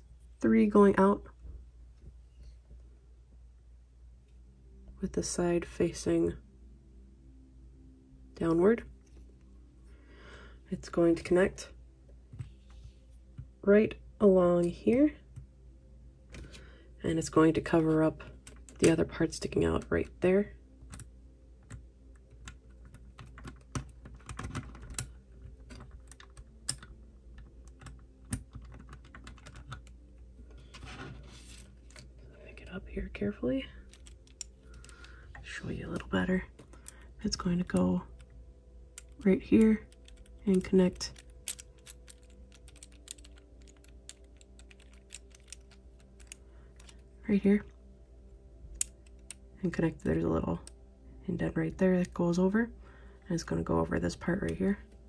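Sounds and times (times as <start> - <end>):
plastic puzzle pieces clicking: 33.9 - 35.2, 39.9 - 47.0.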